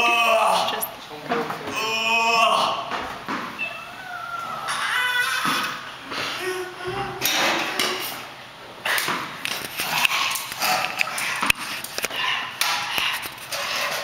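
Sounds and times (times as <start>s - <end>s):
indistinct vocal noises: 3.6s - 8.2s.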